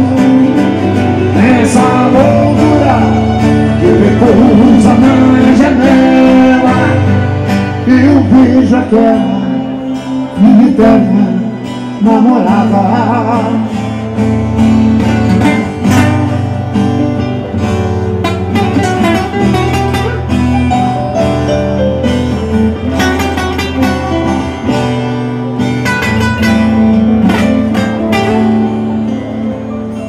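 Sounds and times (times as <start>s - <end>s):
acoustic guitars strummed: 0.0s - 30.0s
sustained keyboard notes: 14.3s - 30.0s.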